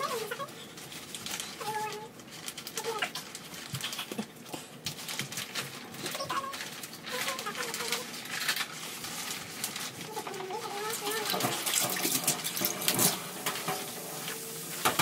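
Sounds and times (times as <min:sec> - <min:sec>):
sausages sizzling in oil: 0:09.9 - 0:15.0.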